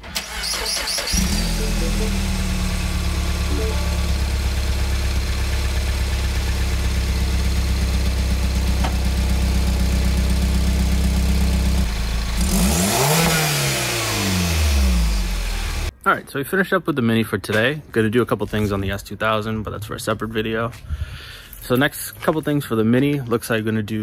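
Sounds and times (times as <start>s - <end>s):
car engine idling: 0.1s - 15.9s.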